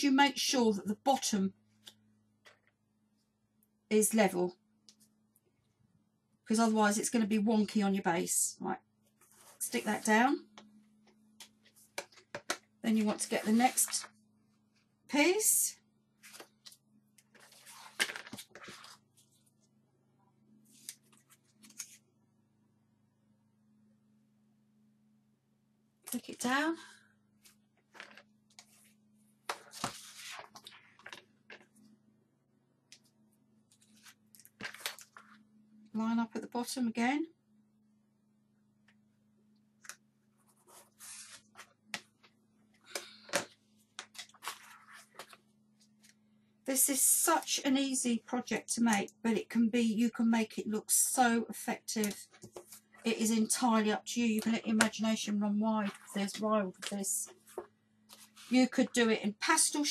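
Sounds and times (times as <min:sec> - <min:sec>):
paper and card crackling: 0:44.0 - 0:45.4.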